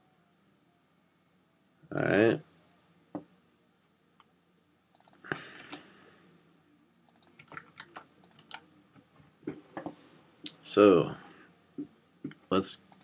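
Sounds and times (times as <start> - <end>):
keyboard and mouse clicks: 4.9 - 5.8, 7.1 - 8.7, 12.3 - 13.0.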